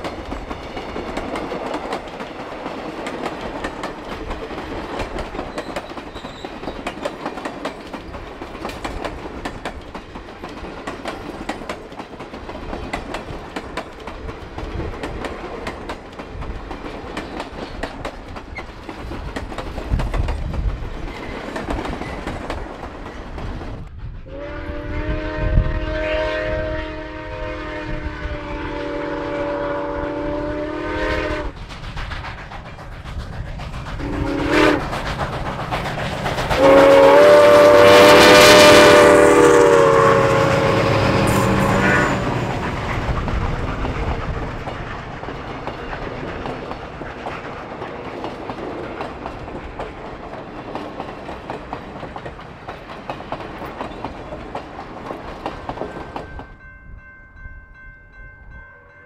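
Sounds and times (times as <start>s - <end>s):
train wheels clicking over rail joints: 0.0s - 24.4s, 31.3s - 56.6s
steam whistle blasts: 24.2s - 31.6s, 34.0s - 34.9s, 36.6s - 42.6s.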